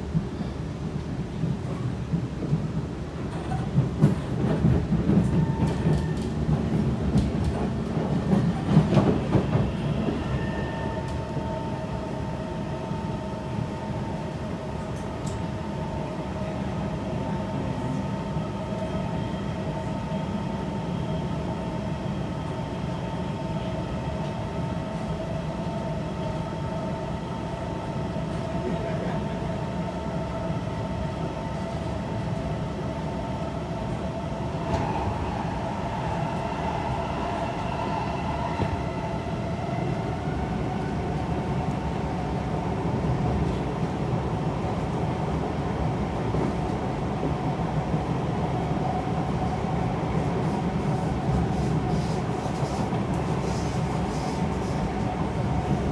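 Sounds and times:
train clacks: 0:00.0 - 0:11.2
steady train whine: 0:00.0 - 0:55.9
train wheels rumbling on rail: 0:00.0 - 0:55.9.

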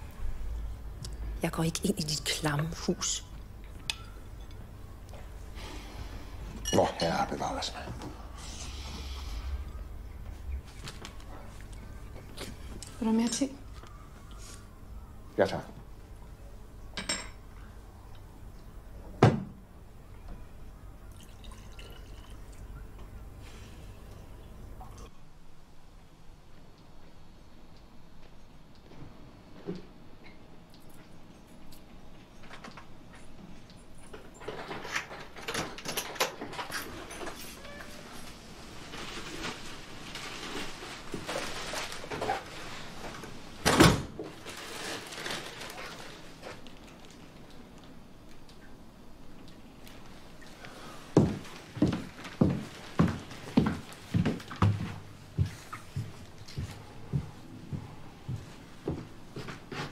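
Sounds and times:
liquid trickling into cup: 0:21.1 - 0:22.8
footsteps on wooden stairs: 0:51.2 - 0:59.9.

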